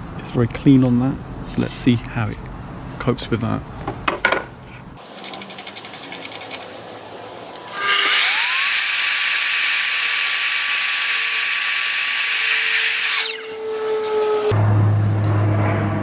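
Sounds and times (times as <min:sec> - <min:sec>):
saw blade cutting board: 0:07.7 - 0:14.5
mitre saw motor whine: 0:07.7 - 0:14.6.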